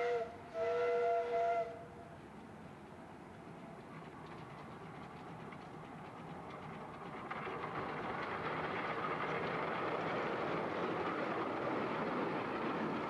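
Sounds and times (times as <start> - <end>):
miniature steam train running: 2.4 - 13.0
train wheels clicking over rails: 2.4 - 13.0.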